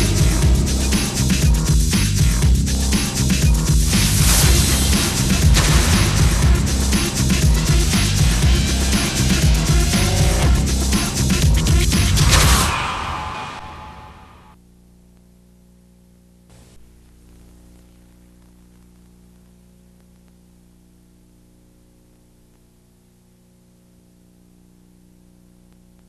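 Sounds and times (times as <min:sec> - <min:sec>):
music: 0:00.0 - 0:14.6
low electrical hum with hiss: 0:14.6 - 0:26.0.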